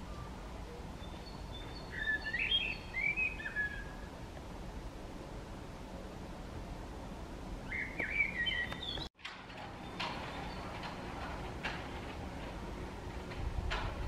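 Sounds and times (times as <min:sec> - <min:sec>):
blackbird singing: 0:00.1 - 0:04.1, 0:07.6 - 0:09.1.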